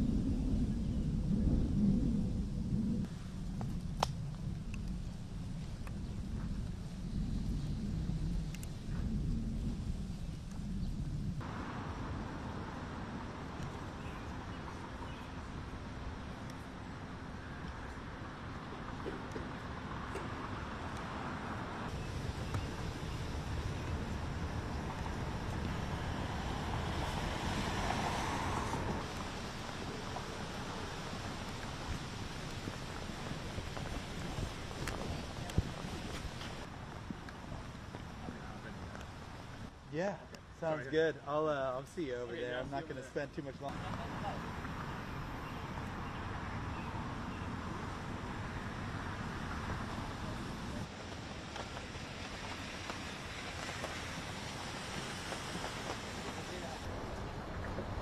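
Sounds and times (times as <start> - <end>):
wind rumbling on microphone: 0.0 - 39.8, 43.6 - 58.0
road traffic hum: 0.0 - 58.0
vehicle passing by: 19.6 - 31.4.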